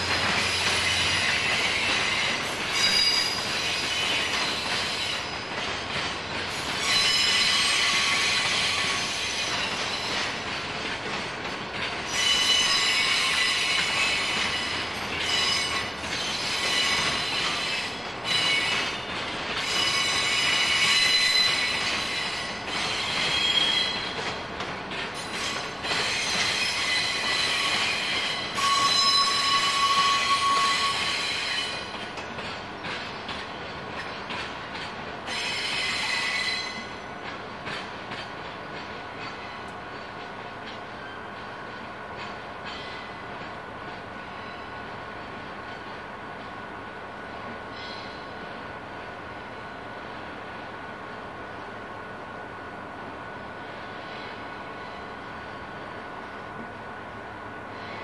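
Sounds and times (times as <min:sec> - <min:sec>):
train wagons rolling: 0:00.0 - 0:46.6
high-pitched wheel squeal: 0:26.2 - 0:31.8.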